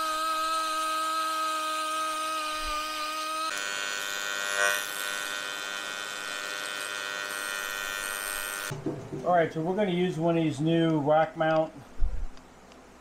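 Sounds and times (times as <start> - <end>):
rotary tool grinding metal: 0.0 - 8.7
welding arc buzzing: 0.0 - 8.8.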